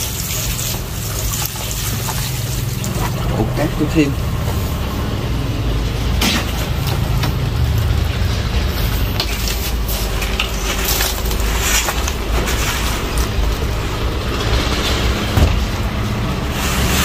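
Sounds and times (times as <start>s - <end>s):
steady low rumble: 0.0s - 17.0s
sand pouring into a pot: 16.5s - 17.0s.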